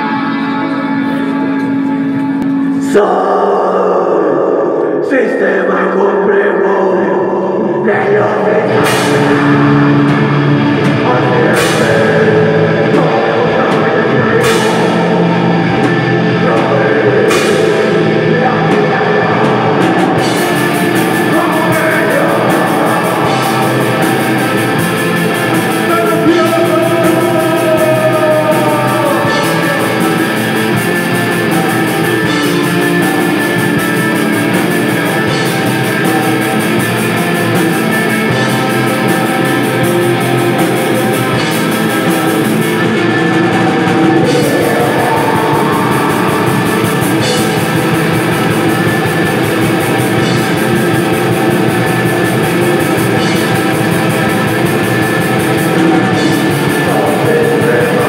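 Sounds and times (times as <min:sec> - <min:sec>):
bass guitar: 0:00.0 - 0:58.0
distorted guitars: 0:00.0 - 0:58.0
vocalist singing: 0:00.0 - 0:58.0
drum kit: 0:07.9 - 0:58.0.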